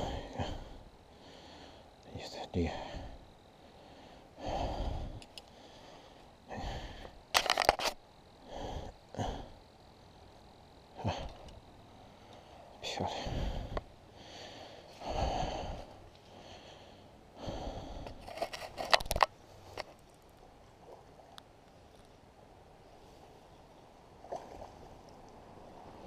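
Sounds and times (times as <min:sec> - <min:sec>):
faint steady background: 0:00.0 - 0:26.0
fishing gear clicks and knocks: 0:07.3 - 0:08.0, 0:18.0 - 0:20.1.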